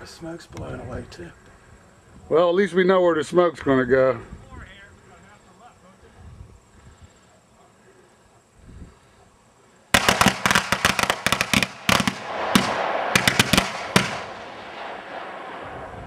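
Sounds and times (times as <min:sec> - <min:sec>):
hiss and crackle: 0:04.4 - 0:16.0
firecrackers banging: 0:09.9 - 0:16.0.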